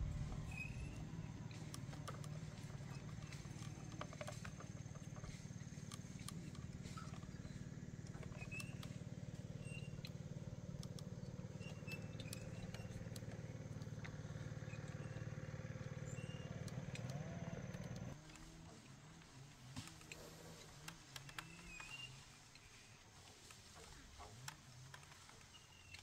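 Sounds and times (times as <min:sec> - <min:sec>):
engine humming: 0:00.0 - 0:25.7.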